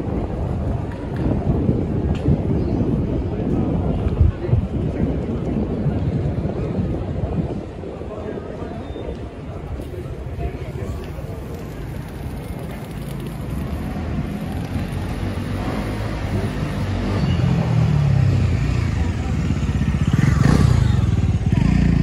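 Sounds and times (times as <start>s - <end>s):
street traffic noise: 0.0s - 22.0s
vehicle engine approaching: 12.5s - 22.0s.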